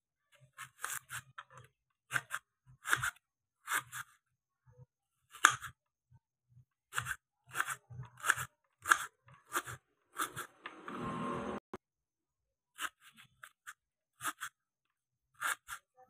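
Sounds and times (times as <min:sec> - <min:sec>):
knife chopping onion on board: 0:00.6 - 0:04.1, 0:05.3 - 0:05.8, 0:06.9 - 0:10.8.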